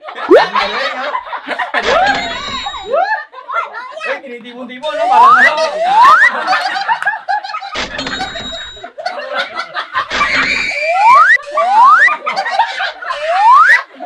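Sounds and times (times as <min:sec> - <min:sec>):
people laughing loudly: 0:00.0 - 0:03.9, 0:05.2 - 0:14.0
rising whistle-like tone: 0:05.0 - 0:06.3, 0:10.7 - 0:12.1, 0:13.2 - 0:13.8.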